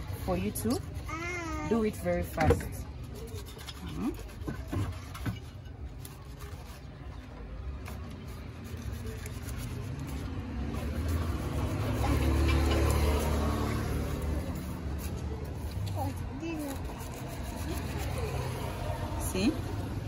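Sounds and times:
knife shredding cabbage: 0:02.9 - 0:07.0, 0:07.9 - 0:18.8.

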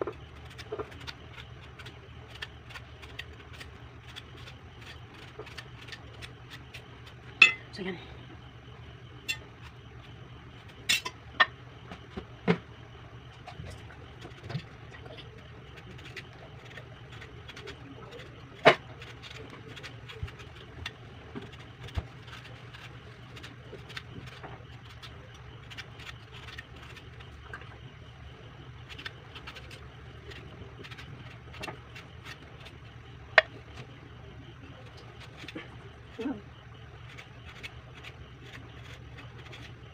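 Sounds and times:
steady low hum: 0:00.0 - 0:39.9
knife scraping fruit skin: 0:00.2 - 0:07.6, 0:13.5 - 0:27.4, 0:28.8 - 0:32.8, 0:37.0 - 0:39.9.

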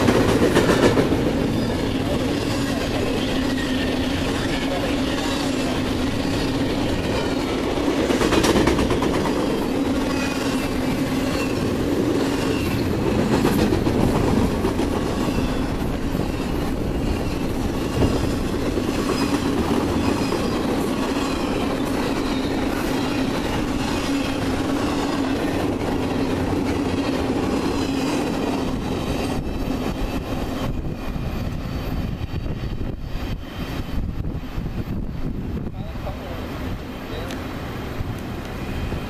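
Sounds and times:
freight train wheels on rails: 0:00.0 - 0:39.0
high wavering wheel squeal: 0:01.4 - 0:07.6.

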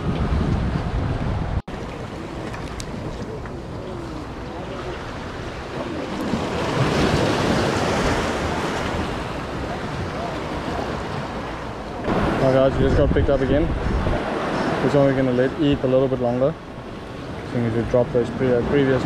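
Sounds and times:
wind buffeting microphone: 0:00.0 - 0:19.0
surf washing against rocks: 0:01.7 - 0:19.0.

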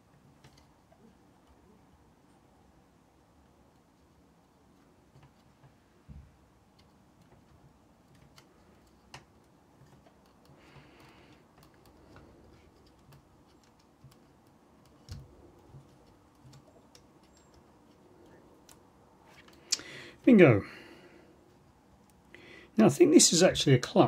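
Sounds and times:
small clicks and taps: 0:00.1 - 0:01.7, 0:03.4 - 0:19.9.

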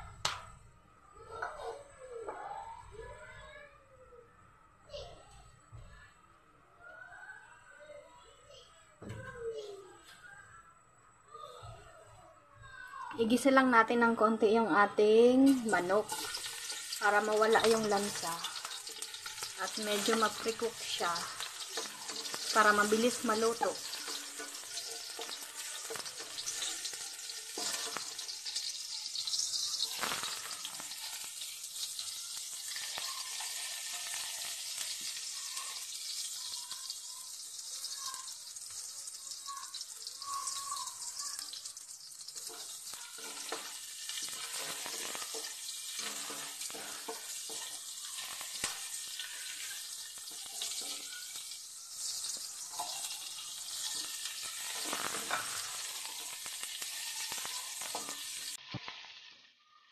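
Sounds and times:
garlic sizzling in hot oil: 0:13.2 - 0:59.8
wooden spatula scraping pan: 0:15.5 - 0:28.4, 0:42.4 - 0:58.6.

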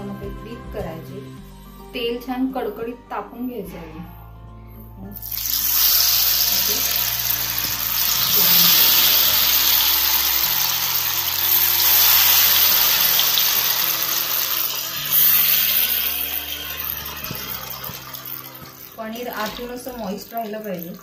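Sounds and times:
batter pieces deep-frying in oil: 0:05.2 - 0:21.0.

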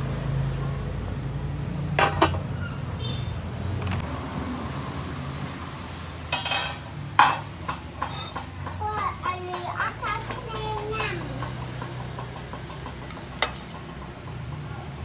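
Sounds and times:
metal pot lid clinking: 0:02.0 - 0:02.4, 0:06.3 - 0:08.6, 0:12.1 - 0:14.0.

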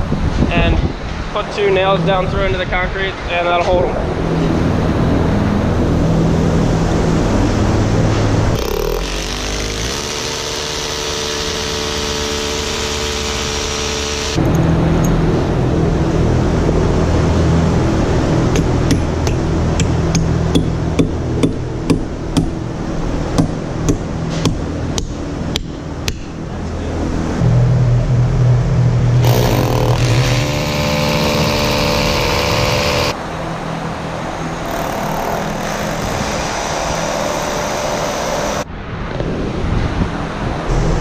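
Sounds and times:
steady low hum: 0:00.0 - 0:41.0
hammer drill boring: 0:08.6 - 0:14.4, 0:29.2 - 0:33.2, 0:34.6 - 0:38.7
hammer striking nails: 0:18.6 - 0:22.6, 0:29.2 - 0:33.2.

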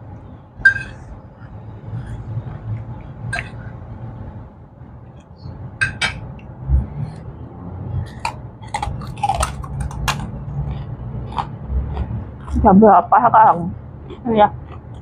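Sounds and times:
cutlery clinking on plate: 0:05.8 - 0:06.2
crunching crackers: 0:08.1 - 0:12.6.

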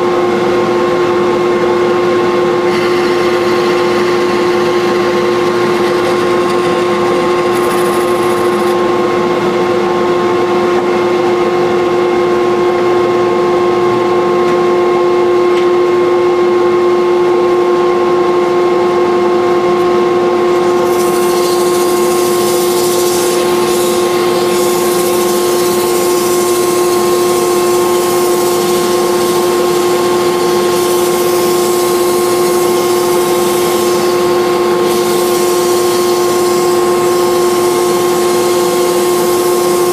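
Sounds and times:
wood lathe whine: 0:00.0 - 0:14.2, 0:17.4 - 0:39.9
blade scraping spinning wood: 0:02.7 - 0:08.8, 0:20.6 - 0:39.9.

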